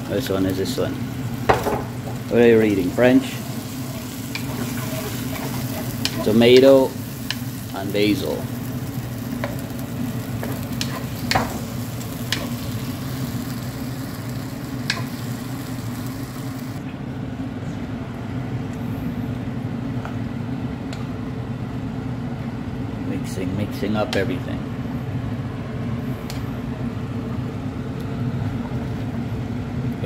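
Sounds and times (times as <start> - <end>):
vegetables sizzling in a wok: 0.0 - 16.8
steady low hum: 0.0 - 30.0.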